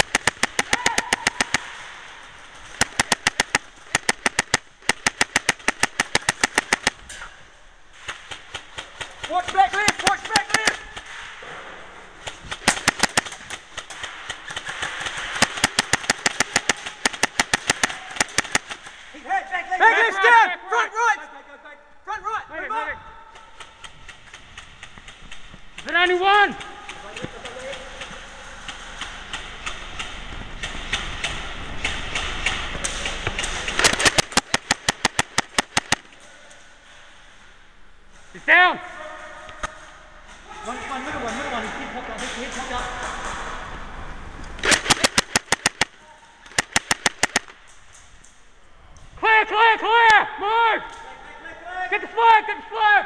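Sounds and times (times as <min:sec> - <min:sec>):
sharp clicks: 0:00.0 - 0:01.8, 0:02.6 - 0:07.2, 0:12.2 - 0:19.0, 0:23.3 - 0:36.6, 0:44.4 - 0:48.4
airsoft guns firing: 0:00.0 - 0:07.4, 0:08.0 - 0:11.4, 0:12.2 - 0:19.2, 0:23.3 - 0:36.6, 0:44.6 - 0:47.8.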